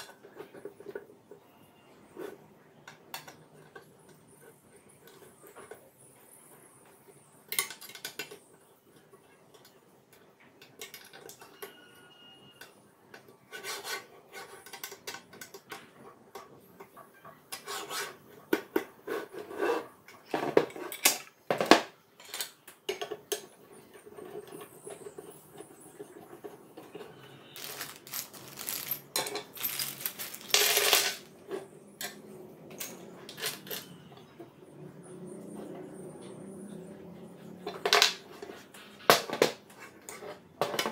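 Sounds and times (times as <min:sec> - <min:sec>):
metal parts clattering on table: 0:27.4 - 0:31.3, 0:32.8 - 0:34.1.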